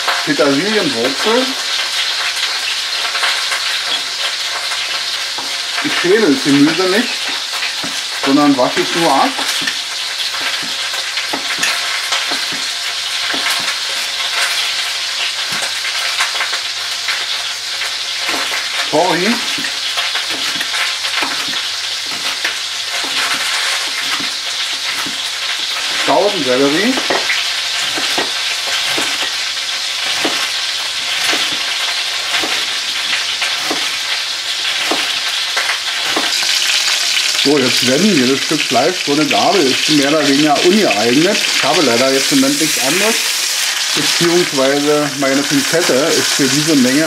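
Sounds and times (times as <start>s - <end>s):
oil sizzling: 0.0s - 47.0s
knife chopping on wooden board: 33.6s - 33.9s.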